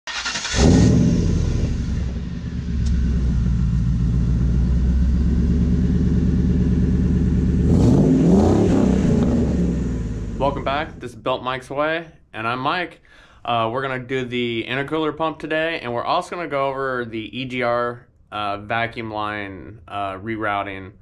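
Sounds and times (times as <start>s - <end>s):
car engine idling and revving: 0.1s - 11.0s.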